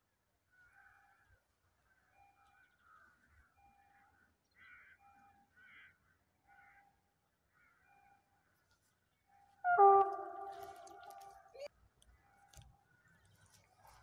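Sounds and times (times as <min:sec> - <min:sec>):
harsh bird calls: 0:09.6 - 0:11.7.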